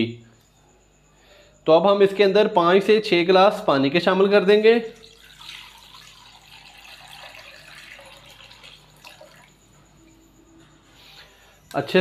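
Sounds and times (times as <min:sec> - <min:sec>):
water pouring and splashing into pan: 0:05.0 - 0:09.6.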